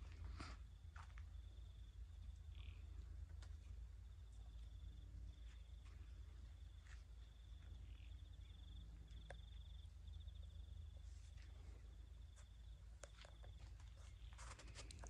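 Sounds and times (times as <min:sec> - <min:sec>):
insect chirping in trills: 0:01.3 - 0:03.1, 0:06.4 - 0:11.1.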